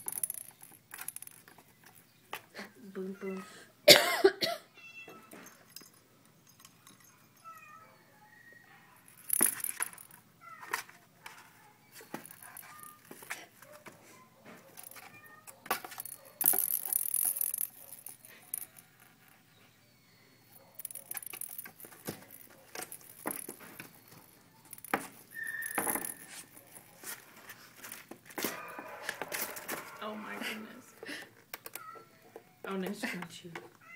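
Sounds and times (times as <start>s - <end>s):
kittens scuffling: 9.0s - 19.8s, 20.5s - 33.9s.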